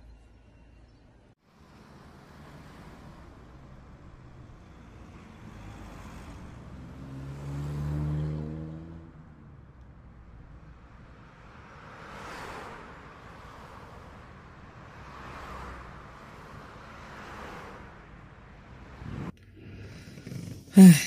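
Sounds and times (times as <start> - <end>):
street traffic noise: 0.0 - 21.0
vehicle passing close: 4.5 - 9.8.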